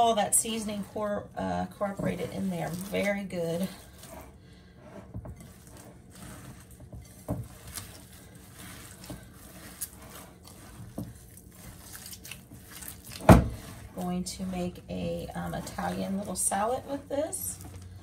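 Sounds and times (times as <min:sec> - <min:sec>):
hands squishing wet meat mixture: 0:00.0 - 0:18.0.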